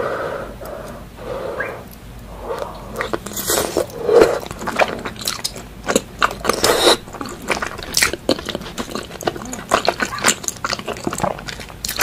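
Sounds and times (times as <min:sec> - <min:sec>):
fingers being sucked: 0:00.6 - 0:03.0
chewing and lip-smacking: 0:01.9 - 0:12.0.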